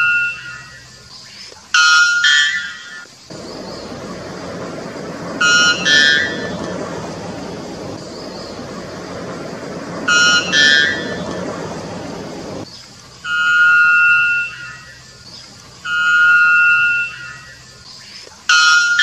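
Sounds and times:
background rush of noise: 0.0s - 19.0s
bird ringing notes: 1.8s - 12.6s.

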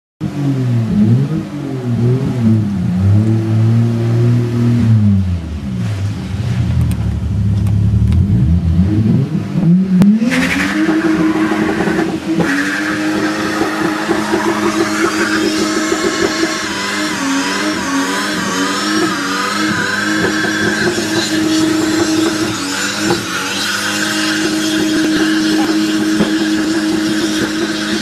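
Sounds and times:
car engine revving: 0.2s - 28.0s
tyres squealing: 10.8s - 28.0s.

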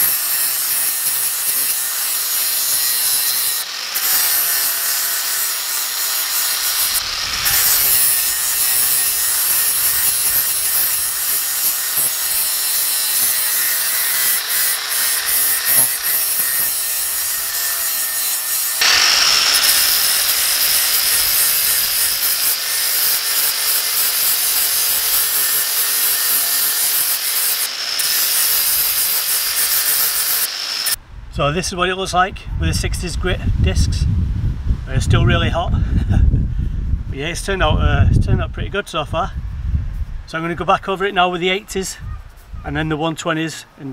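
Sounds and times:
angle grinder sanding steel: 0.0s - 31.0s.

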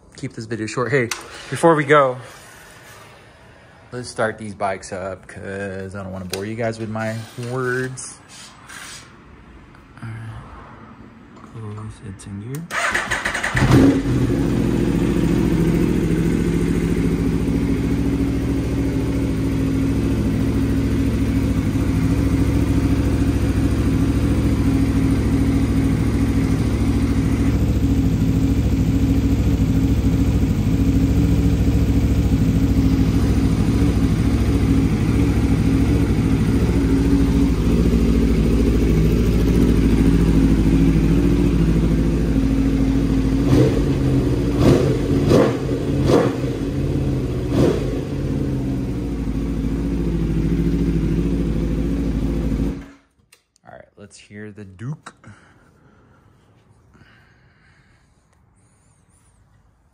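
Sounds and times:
motorcycle engine idling: 12.8s - 53.0s.

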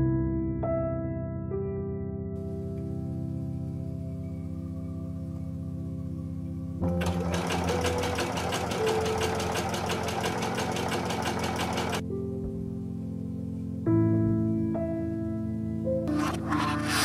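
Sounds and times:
soft background music: 0.0s - 17.0s
sewing machine stitching: 6.8s - 12.0s, 16.1s - 17.0s.

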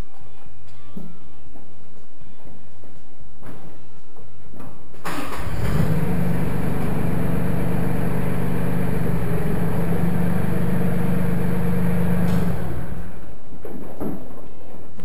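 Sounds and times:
tractor diesel engine running: 5.1s - 13.2s.

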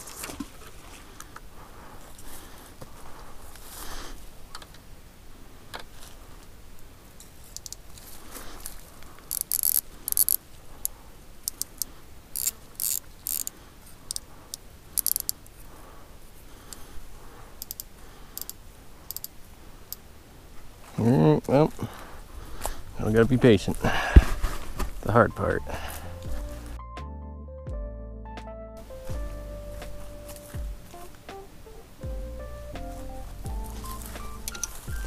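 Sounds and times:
fishing reel ratcheting: 9.3s - 10.4s, 11.4s - 13.5s, 15.0s - 15.4s, 17.6s - 19.4s.

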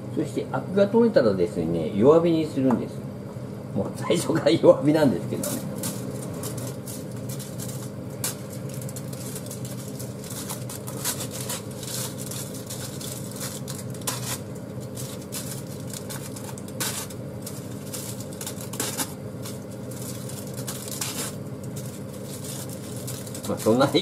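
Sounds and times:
steady low hum: 0.0s - 24.0s
aluminium foil crinkling: 5.3s - 24.0s.

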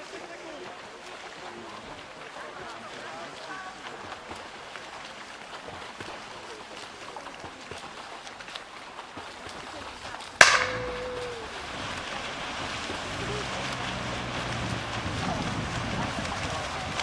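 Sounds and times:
swimmers splashing: 0.0s - 17.0s
starting pistol crack: 10.4s - 11.4s
crowd voices: 10.4s - 17.0s.

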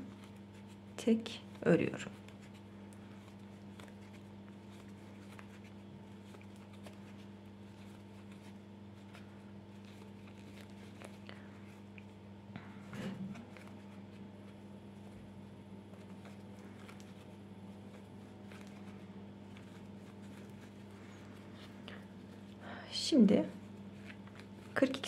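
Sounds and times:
crochet hook scratching yarn: 0.0s - 11.2s
steady low hum: 0.0s - 25.0s.

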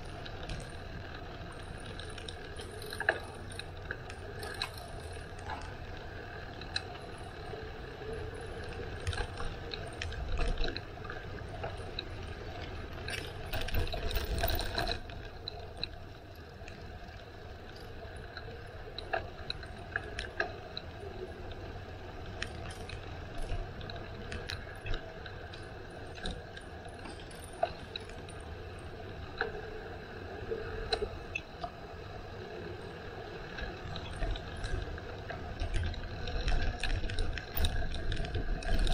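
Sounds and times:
rattles and clicks: 0.0s - 16.0s, 33.5s - 38.9s
bicycle freewheel ticking: 0.0s - 38.9s.

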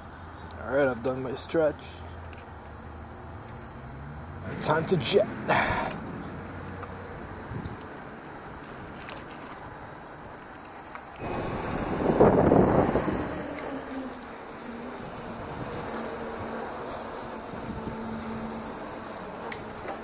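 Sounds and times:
rush of wind noise: 7.2s - 7.9s, 11.2s - 16.6s, 17.5s - 18.2s
bike tyres rustling on dirt: 7.6s - 20.0s
faint hum: 9.0s - 19.9s.

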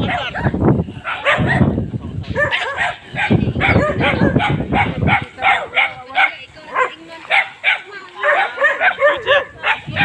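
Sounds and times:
dog barking: 0.0s - 10.0s.

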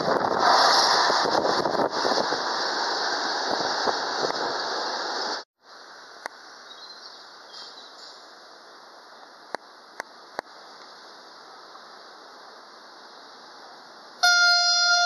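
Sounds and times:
freight train passing: 13.6s - 15.0s.

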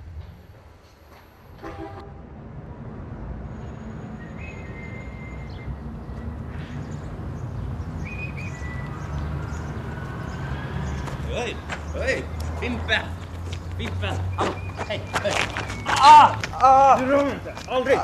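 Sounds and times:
traffic rumble: 0.0s - 18.0s
bird chirping: 4.1s - 16.3s.

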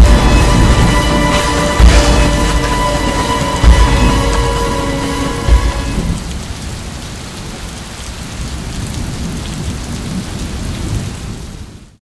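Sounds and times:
steady rushing noise: 0.0s - 6.9s
low rumble: 0.0s - 7.0s.

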